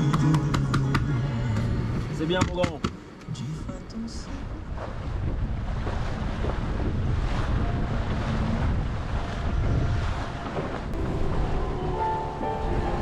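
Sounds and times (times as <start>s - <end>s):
water rushing along hull: 4.0s - 13.0s
wind buffeting microphone: 4.4s - 13.0s.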